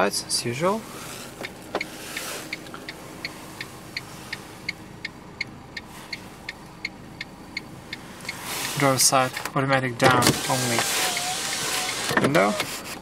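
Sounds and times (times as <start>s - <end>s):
car engine idling: 0.0s - 13.0s
hazard light flasher ticking: 1.4s - 8.4s.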